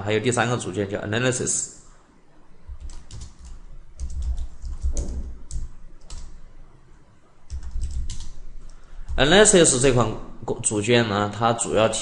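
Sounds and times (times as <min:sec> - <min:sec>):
keyboard typing: 0:02.7 - 0:06.4, 0:07.5 - 0:09.3.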